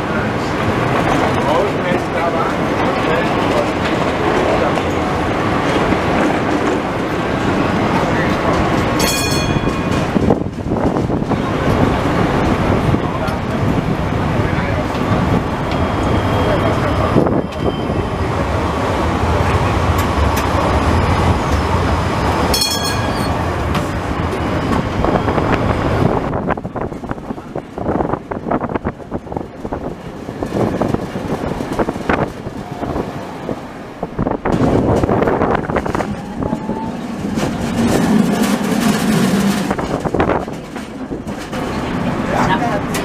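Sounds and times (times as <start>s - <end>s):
tram rumbling: 0.0s - 43.0s
wheels clicking on rails: 0.3s - 17.7s, 34.2s - 43.0s
high-pitched tone: 22.5s - 23.6s.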